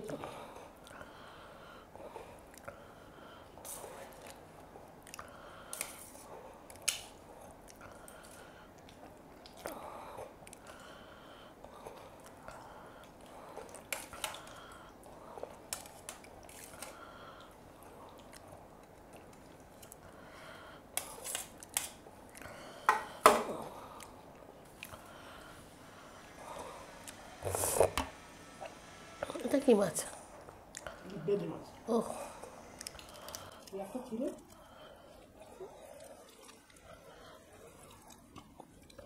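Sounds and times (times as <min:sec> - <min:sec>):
chewing: 0:03.6 - 0:06.0, 0:06.7 - 0:11.0, 0:11.6 - 0:20.2, 0:30.5 - 0:31.2, 0:32.7 - 0:39.0.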